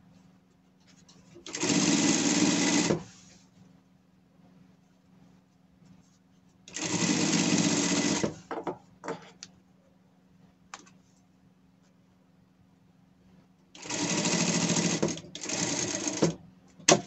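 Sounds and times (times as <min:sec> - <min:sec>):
faint motor hum: 0:00.0 - 0:17.0
sewing machine stitching: 0:01.4 - 0:03.1, 0:06.7 - 0:08.4, 0:13.8 - 0:17.0.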